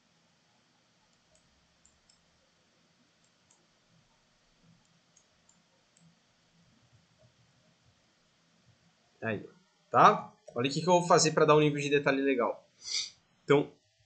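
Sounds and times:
computer mouse clicks: 1.1 - 2.3, 3.2 - 3.7, 4.6 - 6.2.

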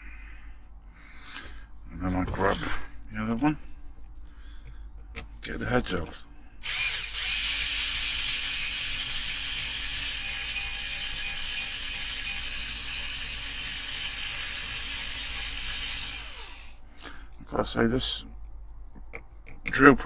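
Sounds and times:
power drill drilling metal: 6.6 - 16.8.

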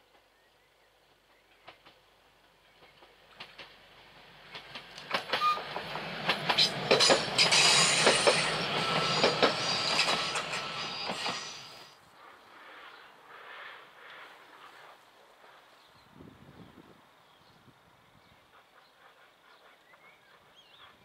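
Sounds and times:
train wheels clicking over rail joints: 2.8 - 3.8, 4.4 - 11.9.

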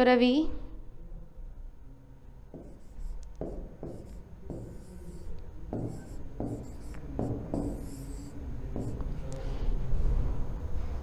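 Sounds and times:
stylus rubbing on smart board: 2.5 - 9.6.

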